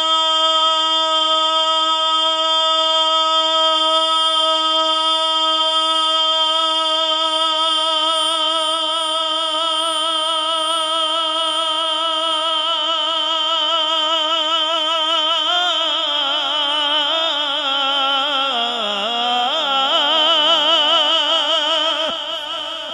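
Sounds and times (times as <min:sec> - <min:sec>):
man singing held note: 0:06.2 - 0:22.9.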